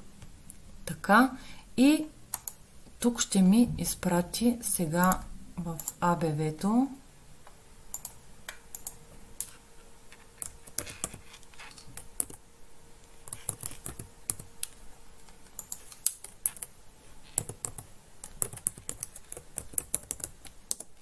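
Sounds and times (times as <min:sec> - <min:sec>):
typing on a computer keyboard: 0:07.9 - 0:09.0, 0:13.2 - 0:14.8, 0:15.4 - 0:16.7, 0:17.3 - 0:21.0.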